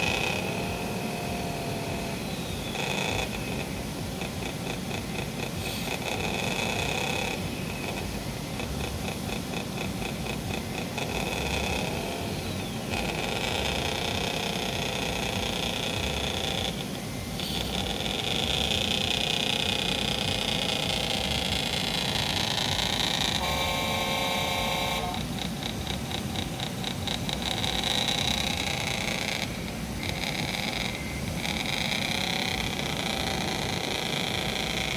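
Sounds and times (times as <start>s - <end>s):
fast mechanical ticking: 0.0s - 34.9s
toy truck motor drone: 0.0s - 34.9s
horn toot: 23.4s - 25.2s.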